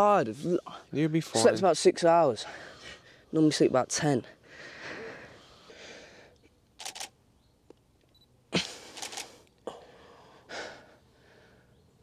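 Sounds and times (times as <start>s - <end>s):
camera shutter clicks: 6.8s - 7.2s, 8.9s - 9.4s.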